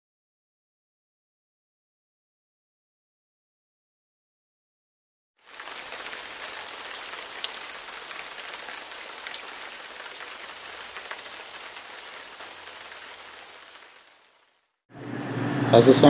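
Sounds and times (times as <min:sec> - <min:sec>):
rain falling: 0:05.4 - 0:14.8.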